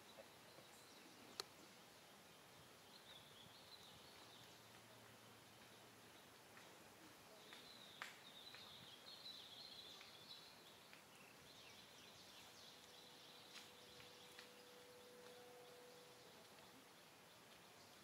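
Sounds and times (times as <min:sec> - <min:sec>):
thin steady hum: 0:08.7 - 0:18.0.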